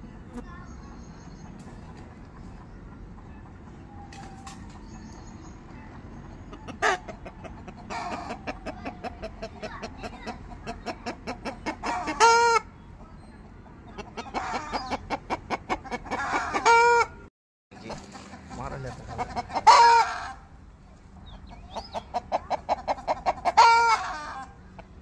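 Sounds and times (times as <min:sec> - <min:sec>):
chicken clucking: 0:01.3 - 0:17.2, 0:17.8 - 0:25.0
chicken squawk: 0:06.5 - 0:12.7, 0:13.9 - 0:17.2, 0:19.1 - 0:20.5, 0:21.6 - 0:24.6.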